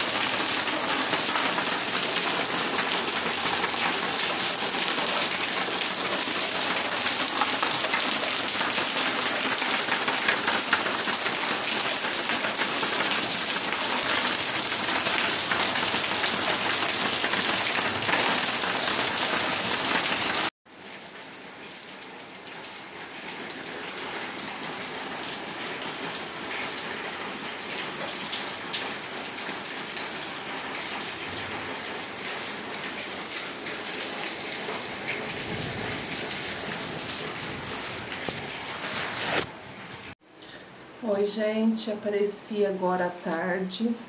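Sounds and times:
water dripping off roof edge: 0:00.0 - 0:20.4
steady rain falling: 0:00.0 - 0:41.4.

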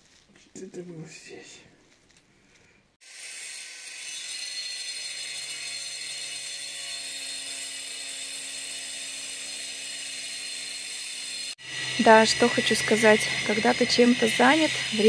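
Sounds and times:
motor running with high hiss: 0:10.2 - 0:15.0.

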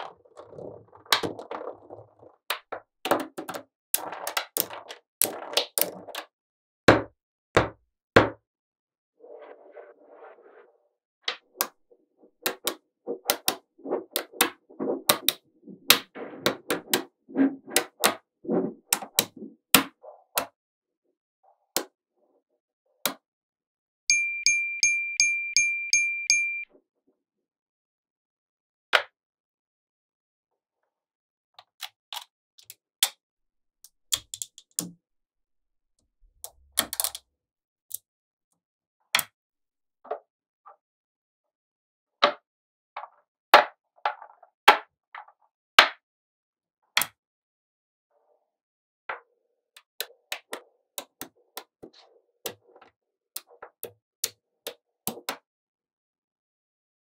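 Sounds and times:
high ringing tone with ticks: 0:24.1 - 0:26.7.

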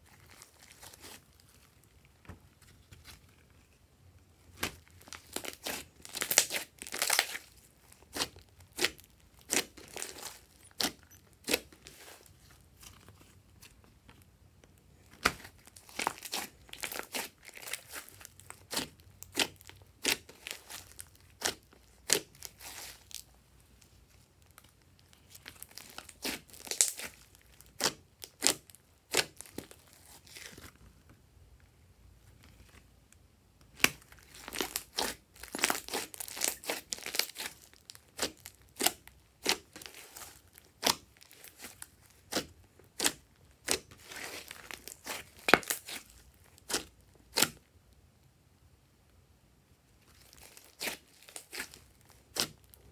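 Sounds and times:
slime popping and crackling: 0:04.5 - 0:12.1, 0:15.2 - 0:23.2, 0:24.4 - 0:30.5, 0:33.7 - 0:47.6, 0:50.1 - 0:52.9.

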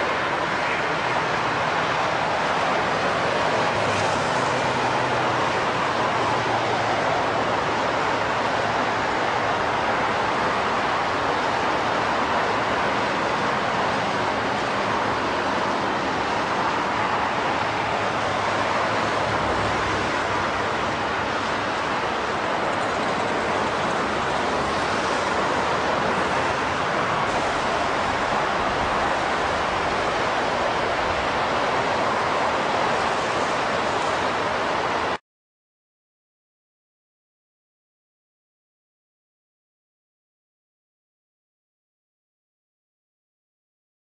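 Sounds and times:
freeway traffic roar: 0:00.0 - 0:35.2.

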